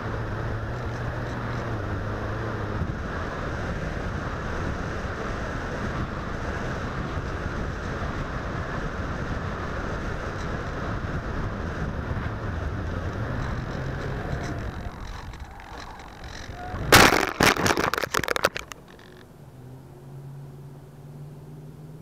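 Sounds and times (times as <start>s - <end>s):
wind rush on microphone: 0.0s - 19.2s
motor and propeller drone: 8.8s - 19.2s.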